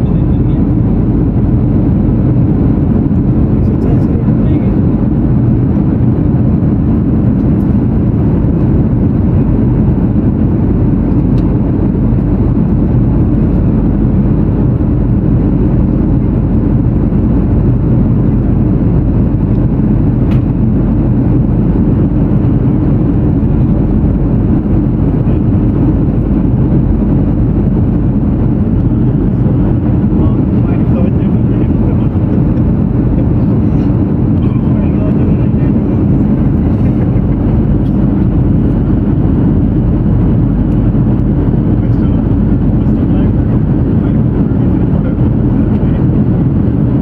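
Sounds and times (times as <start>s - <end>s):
jet airliner cabin noise: 0.0s - 47.0s.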